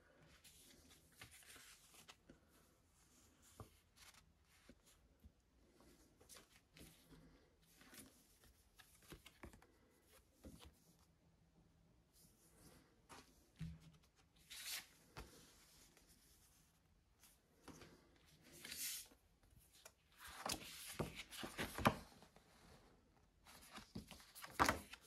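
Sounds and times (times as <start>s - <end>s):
paper and card rustling: 13.2s - 15.4s, 23.5s - 25.0s.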